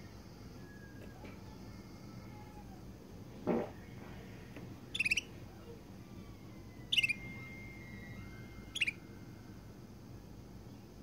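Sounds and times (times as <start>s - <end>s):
canary chirping: 4.9s - 5.4s, 6.8s - 9.0s.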